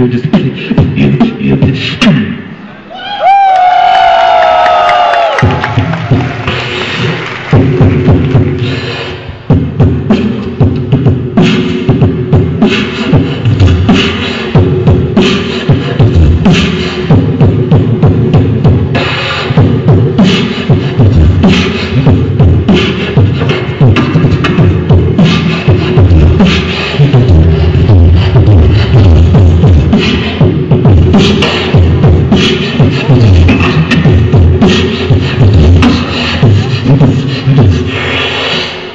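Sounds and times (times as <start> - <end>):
person beatboxing: 0.0 - 2.8, 5.0 - 38.9.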